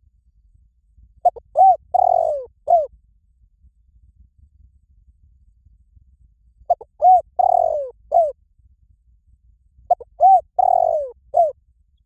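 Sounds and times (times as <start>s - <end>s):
dove cooing: 1.2s - 2.9s, 6.7s - 8.4s, 9.9s - 11.6s.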